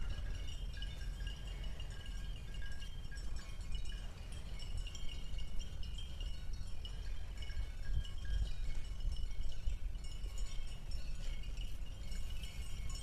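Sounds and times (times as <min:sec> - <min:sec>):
small metal bells tinkling: 0:00.0 - 0:13.0.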